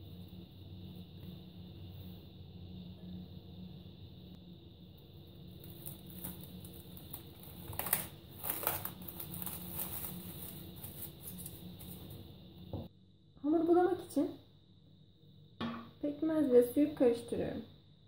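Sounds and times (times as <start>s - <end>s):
low steady hum: 0.0s - 18.0s
cling film crinkling: 5.5s - 12.2s.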